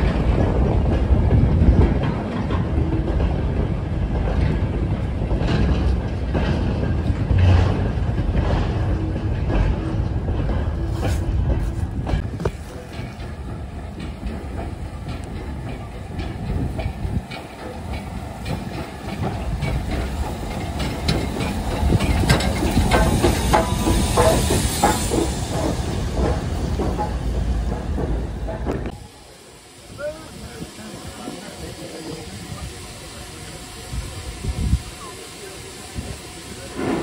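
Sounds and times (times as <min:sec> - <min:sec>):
train wheels clicking over rail joints: 0:00.0 - 0:29.0
steam hissing: 0:00.0 - 0:37.0.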